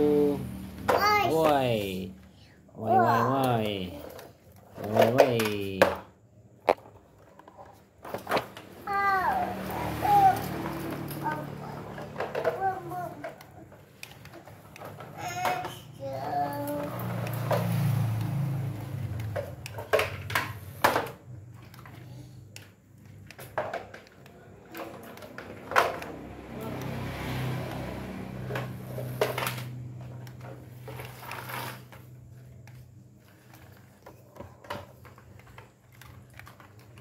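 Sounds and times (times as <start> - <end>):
plastic toys knocking on tiles: 4.8 - 8.7, 11.8 - 15.8, 19.0 - 21.7, 22.6 - 26.3
toy car motor whirring: 8.8 - 19.8.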